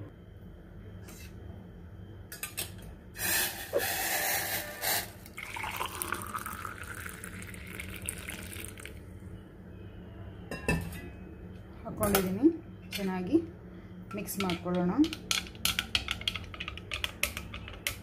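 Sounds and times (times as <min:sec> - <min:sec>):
water pouring into a glass: 0:05.2 - 0:09.0.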